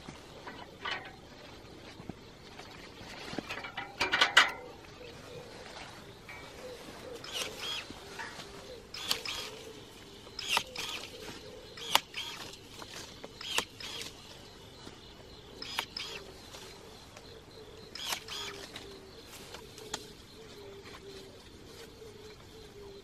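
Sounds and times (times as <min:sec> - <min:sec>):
pruning shears motor whir: 0:07.2 - 0:14.4, 0:15.6 - 0:16.5, 0:17.9 - 0:18.8.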